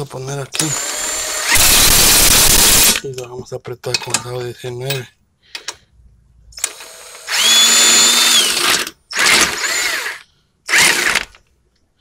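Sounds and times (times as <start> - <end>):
impact wrench whining: 0.6 - 3.0, 6.6 - 11.4.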